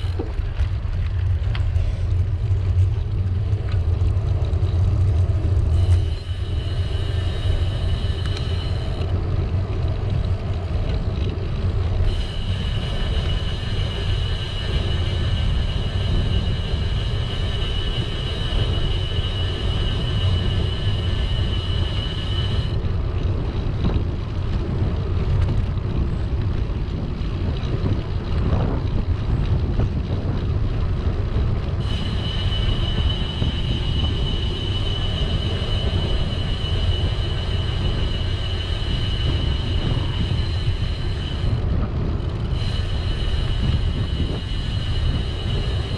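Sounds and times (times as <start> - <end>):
bicycle tyres rolling on tarmac: 0.0 - 45.9
wind on microphone: 0.0 - 45.9
thin high whine: 3.7 - 22.9, 31.7 - 45.9.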